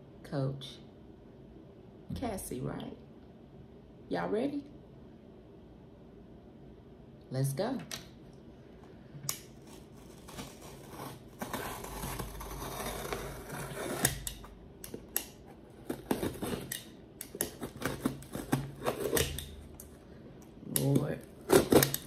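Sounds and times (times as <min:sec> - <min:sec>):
box cutter slicing packing tape: 0:09.6 - 0:15.1, 0:15.8 - 0:19.6, 0:20.8 - 0:22.0.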